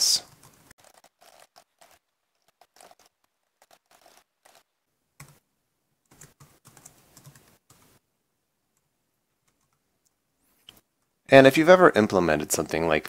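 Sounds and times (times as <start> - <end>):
typing on a computer keyboard: 0.4 - 4.6, 6.1 - 7.9.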